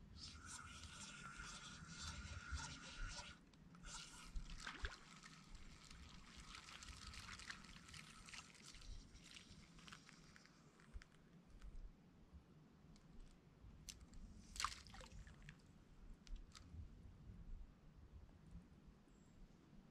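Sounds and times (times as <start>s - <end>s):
trickling water: 0.2s - 11.1s.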